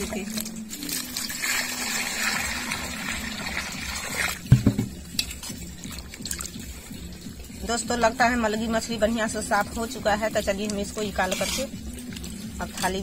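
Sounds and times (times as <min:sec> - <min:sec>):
water pouring into steel bowl: 0:00.0 - 0:07.2
thump: 0:04.5 - 0:04.9.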